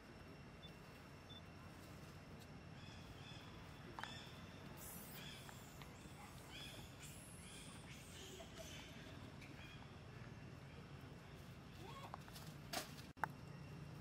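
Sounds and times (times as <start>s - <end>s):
low steady hum: 0.0s - 14.0s
birds chirping: 2.6s - 11.6s.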